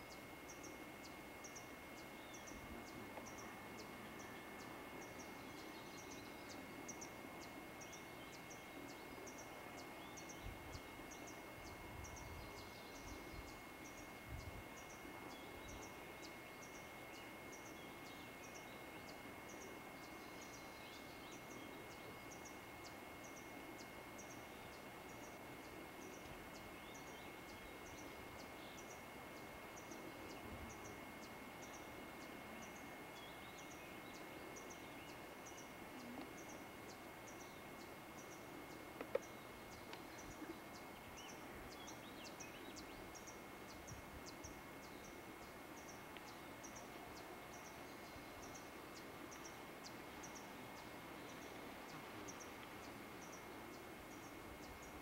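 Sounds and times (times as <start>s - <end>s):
camcorder tape hiss: 0.0s - 55.0s.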